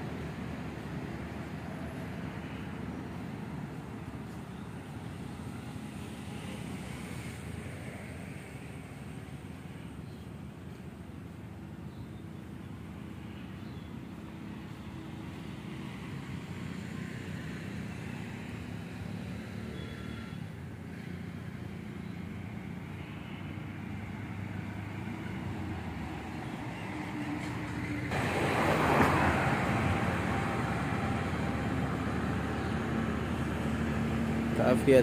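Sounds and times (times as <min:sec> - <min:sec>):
distant car driving: 0:14.5 - 0:35.0.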